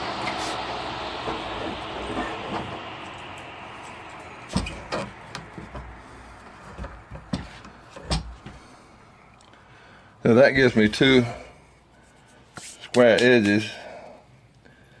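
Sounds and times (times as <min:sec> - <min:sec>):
table saw winding down: 0:00.0 - 0:07.8.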